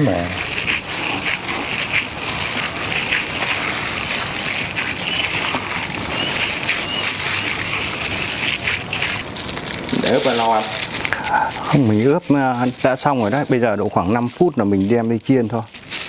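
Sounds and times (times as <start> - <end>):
wet squelching of kneading: 0.0 - 16.0.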